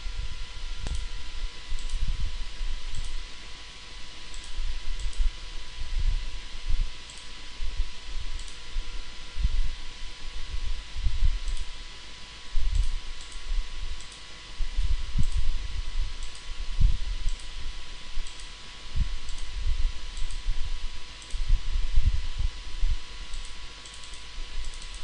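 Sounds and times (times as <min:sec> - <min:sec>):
steady hum and hiss: 0:00.0 - 0:25.0
computer mouse clicks: 0:00.8 - 0:01.1, 0:01.7 - 0:02.1, 0:02.8 - 0:03.2, 0:04.3 - 0:05.3, 0:07.0 - 0:07.4, 0:08.4 - 0:08.6, 0:11.4 - 0:11.7, 0:12.7 - 0:15.5, 0:16.2 - 0:16.6, 0:17.3 - 0:17.5, 0:18.2 - 0:18.6, 0:19.2 - 0:19.5, 0:20.2 - 0:20.5, 0:21.2 - 0:21.5, 0:23.3 - 0:25.0
dull low thumps: 0:14.6 - 0:17.3.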